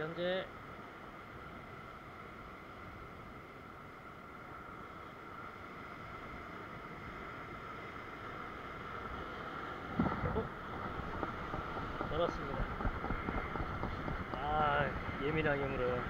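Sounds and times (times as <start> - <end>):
surf washing over rocks: 0.0 - 16.0
wind on microphone: 5.4 - 16.0.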